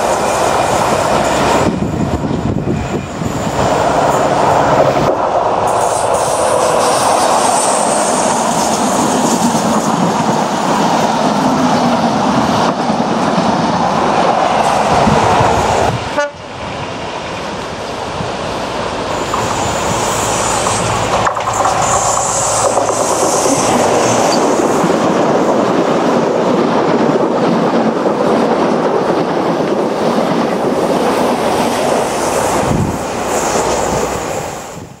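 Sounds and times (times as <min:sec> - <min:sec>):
train passing close by: 0:00.0 - 0:35.0
high wheel squeal: 0:19.1 - 0:24.6.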